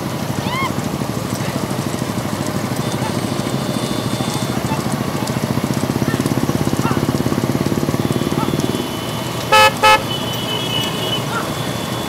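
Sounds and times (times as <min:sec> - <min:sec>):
motorcycle engines puttering: 0:00.0 - 0:12.0
vehicle horn honk: 0:02.8 - 0:04.6, 0:07.9 - 0:12.0.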